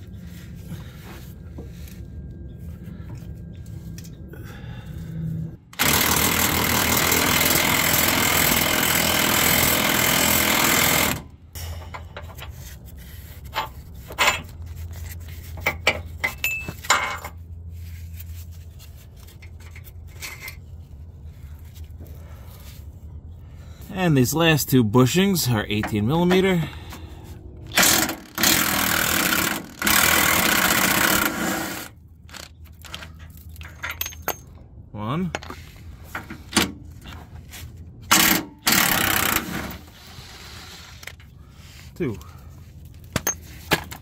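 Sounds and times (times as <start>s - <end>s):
metal parts clinking: 32.2s - 35.6s, 42.8s - 44.0s
impact wrench hammering: 38.1s - 39.7s.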